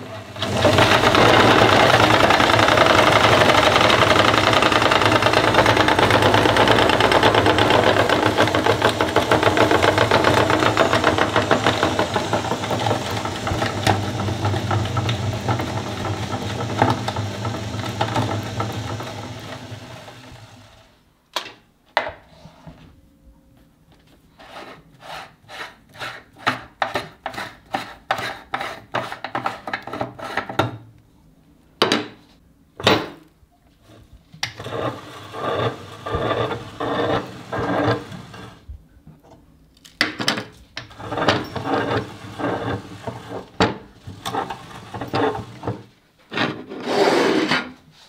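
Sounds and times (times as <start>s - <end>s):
meat grinder crushing hard candy: 0.3s - 20.8s, 34.5s - 38.6s, 40.9s - 45.8s.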